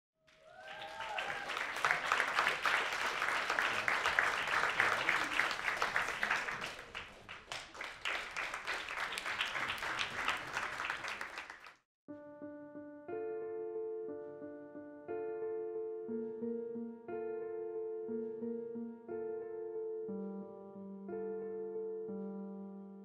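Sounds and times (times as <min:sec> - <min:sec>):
audience applauding: 0:00.3 - 0:11.8
piano notes: 0:12.1 - 0:23.0.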